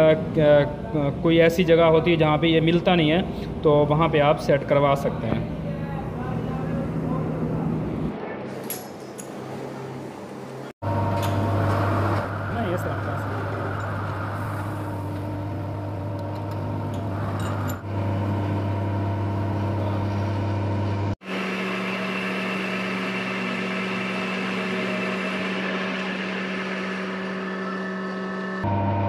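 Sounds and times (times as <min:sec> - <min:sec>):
metal lathe running: 0:10.8 - 0:29.0.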